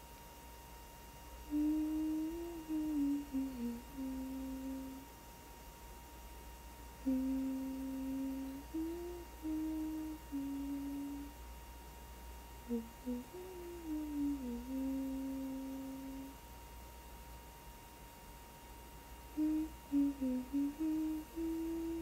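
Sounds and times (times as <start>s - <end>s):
faint steady high tone: 1.4s - 5.2s, 7.0s - 11.5s, 12.6s - 16.4s, 19.2s - 22.0s
person humming a slow melody: 1.4s - 5.2s, 6.9s - 11.5s, 12.6s - 16.4s, 19.2s - 22.0s.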